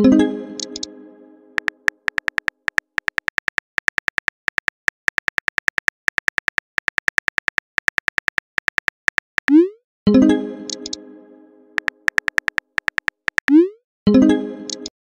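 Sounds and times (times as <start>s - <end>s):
typing clicks: 0.6s - 0.9s, 1.6s - 9.6s, 10.7s - 11.0s, 11.8s - 13.6s, 14.7s - 14.9s.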